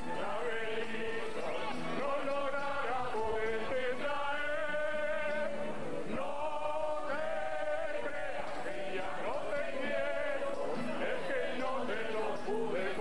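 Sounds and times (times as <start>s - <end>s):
men singing together: 0.0s - 13.0s
strummed guitars: 0.0s - 13.0s.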